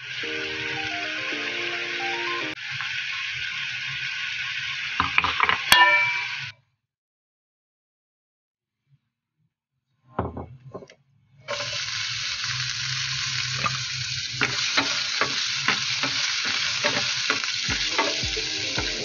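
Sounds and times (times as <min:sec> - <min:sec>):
onion sizzling in hot oil: 0:00.0 - 0:06.5, 0:11.5 - 0:19.0.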